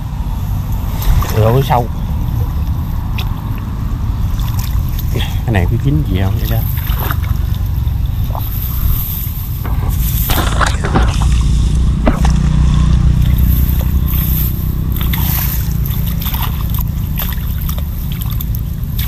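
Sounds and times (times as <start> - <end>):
steady low rumble: 0.0 - 19.0
water sloshing and splashing: 0.6 - 19.0
water trickling and dripping: 13.2 - 19.0.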